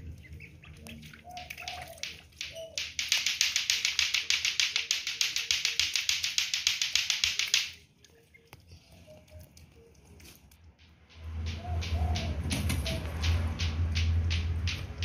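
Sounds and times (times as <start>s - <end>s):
ducklings clicking bills: 0.1s - 15.0s
duckling peeps: 0.2s - 2.8s.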